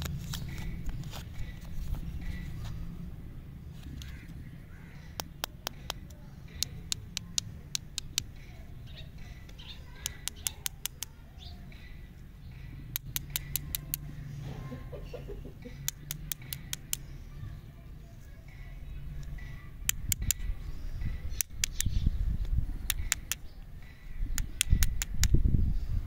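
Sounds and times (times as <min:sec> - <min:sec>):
birds chirping: 0:00.0 - 0:26.0
sharp clicks: 0:05.1 - 0:08.4, 0:09.5 - 0:11.2, 0:12.9 - 0:14.1, 0:15.8 - 0:17.1, 0:19.2 - 0:20.5, 0:21.3 - 0:23.5, 0:24.4 - 0:25.4.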